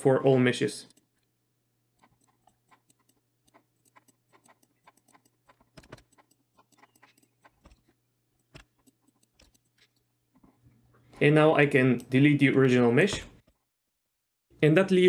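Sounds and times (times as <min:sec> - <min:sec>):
computer mouse clicking: 0:02.0 - 0:10.0.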